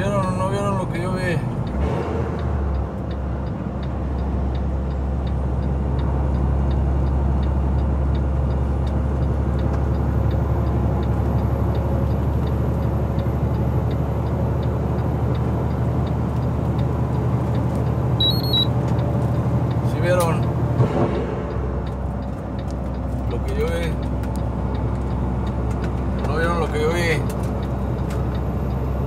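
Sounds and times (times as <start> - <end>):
engine and tyre drone: 0.0 - 29.0
light regular tick: 2.7 - 18.0, 21.8 - 28.9.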